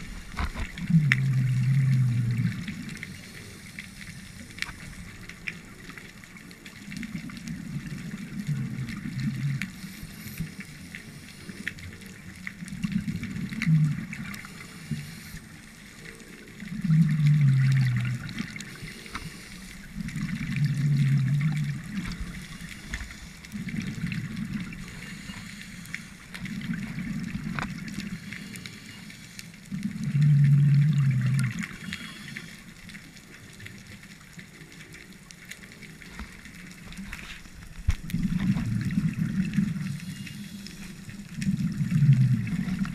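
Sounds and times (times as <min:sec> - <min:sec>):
exhaled bubbles rumbling: 0:00.0 - 0:42.9
diver breathing through regulator: 0:14.4 - 0:16.2, 0:18.3 - 0:20.0, 0:24.7 - 0:26.3.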